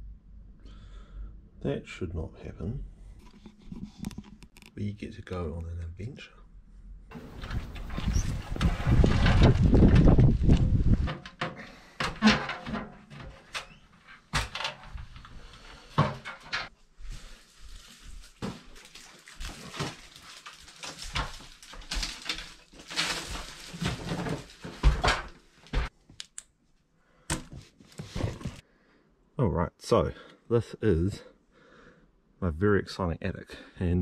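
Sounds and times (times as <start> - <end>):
knocks and bumps: 7.1 - 13.6.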